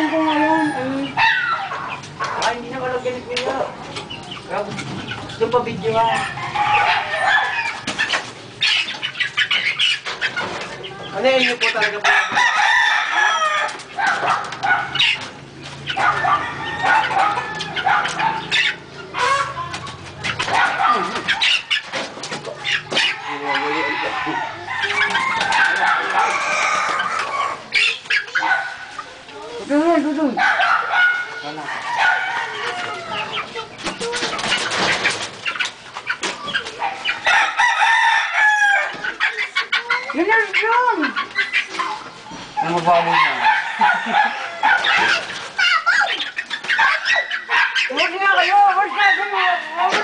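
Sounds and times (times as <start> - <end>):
roosters clucking and calling: 0.0 - 50.0
rustling and knocking of coops: 1.8 - 29.6, 31.2 - 50.0
rooster crowing: 6.1 - 7.8, 12.0 - 13.8, 16.0 - 18.0, 23.1 - 27.7, 31.4 - 33.3, 37.2 - 39.0, 43.1 - 45.1.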